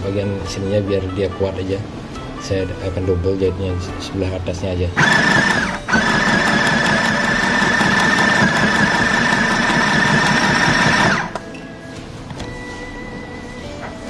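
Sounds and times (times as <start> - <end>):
sewing machine stitching: 5.0 - 11.4.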